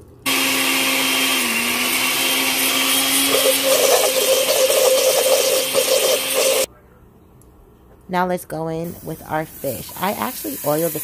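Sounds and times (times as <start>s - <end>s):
blender motor running: 0.3s - 6.7s
thick mix churning rattle: 2.0s - 6.7s.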